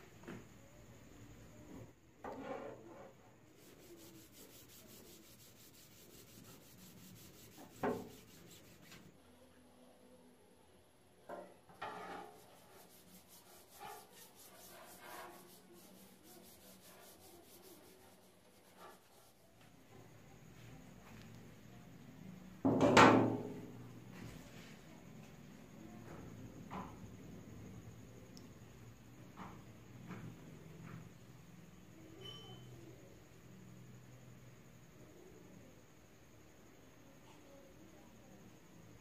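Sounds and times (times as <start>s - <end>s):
cloth wiping wood: 3.6s - 9.1s, 12.2s - 19.4s.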